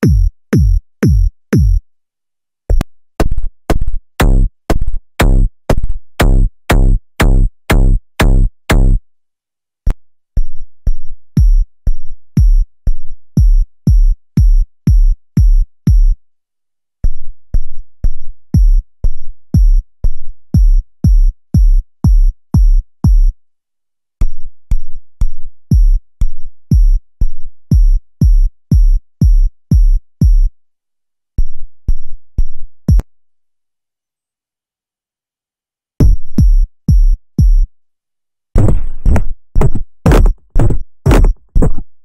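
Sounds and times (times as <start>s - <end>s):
synthesized kick drum thuds: 0.0s - 1.8s, 2.7s - 9.0s, 11.4s - 11.7s, 12.4s - 12.7s, 13.3s - 16.2s, 18.5s - 18.8s, 19.5s - 19.8s, 20.5s - 23.4s, 25.7s - 26.0s, 26.7s - 27.0s, 27.7s - 30.5s, 36.0s - 37.7s, 38.6s - 41.9s.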